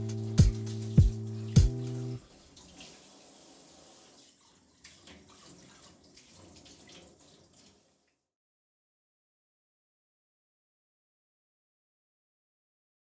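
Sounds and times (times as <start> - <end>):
water drips: 0.0 - 8.2
water trickling from a tap: 0.0 - 8.3.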